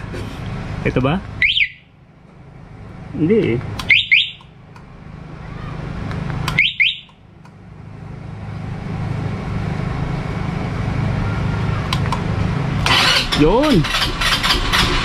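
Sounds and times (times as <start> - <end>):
low steady rumble: 0.0 - 15.0
motorcycle alarm double chirp: 1.4 - 1.9, 3.8 - 4.5, 6.5 - 7.2.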